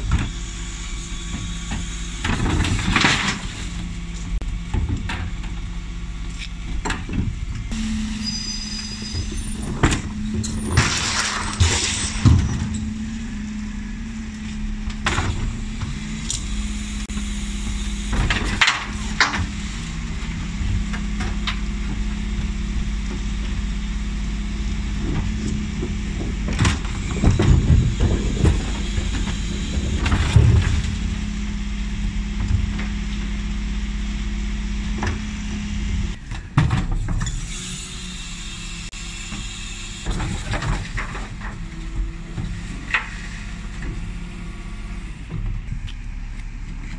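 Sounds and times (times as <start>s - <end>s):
refuse truck idling: 0.0s - 36.3s
bins clattering against lift: 9.2s - 13.0s.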